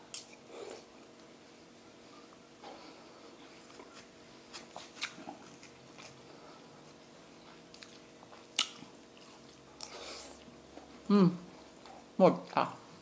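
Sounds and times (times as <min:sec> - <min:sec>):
soft chewing: 0:02.0 - 0:12.2.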